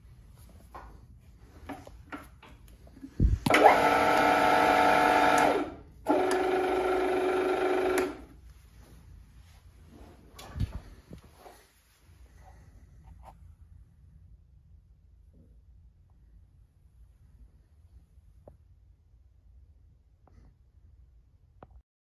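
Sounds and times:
motor starting thump: 0:03.4 - 0:08.2
milling machine motor whining: 0:03.5 - 0:08.3.

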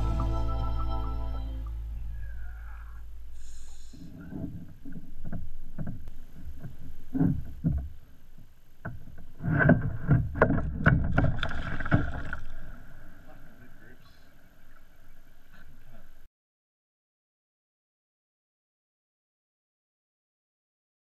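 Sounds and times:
song: 0:00.0 - 0:02.1
knocks and thumps on plastic kayak: 0:04.2 - 0:08.2, 0:08.8 - 0:12.4.

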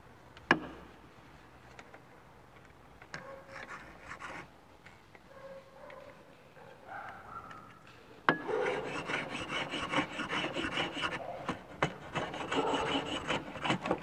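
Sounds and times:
hand plane rasping shavings: 0:08.6 - 0:14.0.

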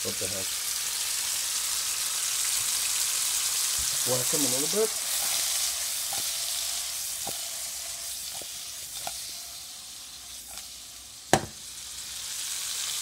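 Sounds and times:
tomatoes sizzling in frying pan: 0:00.0 - 0:13.0
sharp knock: 0:11.3 - 0:11.6.

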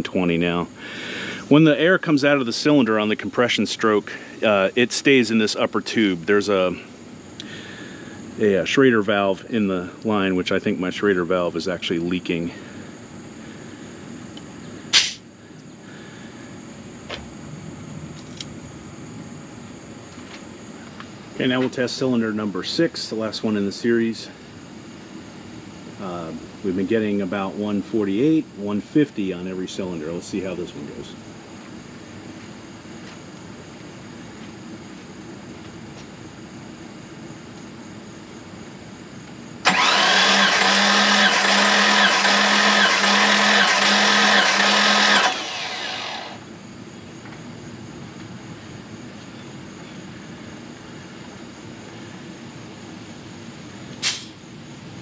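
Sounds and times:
compressed air hiss: 0:00.8 - 0:01.6, 0:14.9 - 0:15.3, 0:54.0 - 0:54.4
starter motor cranking engine: 0:39.6 - 0:46.4.

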